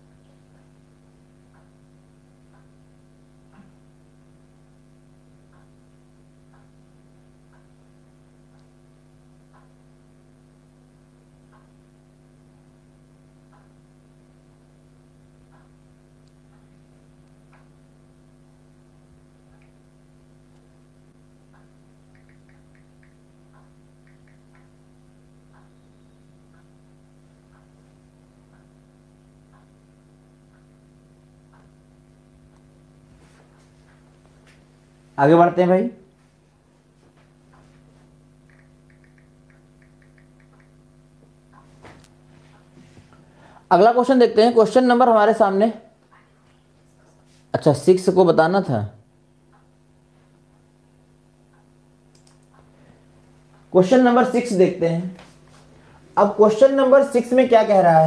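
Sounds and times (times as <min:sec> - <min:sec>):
faint mains hum: 0:00.0 - 0:58.0
soft ticking: 0:00.1 - 0:03.8, 0:05.2 - 0:12.0, 0:12.6 - 0:34.6, 0:37.5 - 0:42.2
quick clicks: 0:22.1 - 0:24.8, 0:38.4 - 0:40.8, 0:52.1 - 0:52.6.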